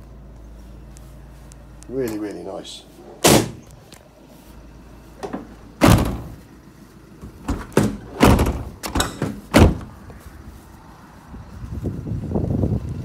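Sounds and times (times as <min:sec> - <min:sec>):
van doors thudding shut: 0:03.2 - 0:03.7, 0:05.2 - 0:06.4, 0:07.2 - 0:10.0.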